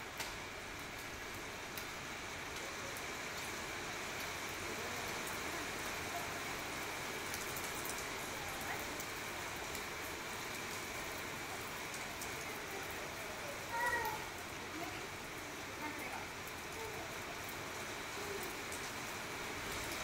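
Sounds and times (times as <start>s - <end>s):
rain on tiled roof: 0.0s - 20.0s.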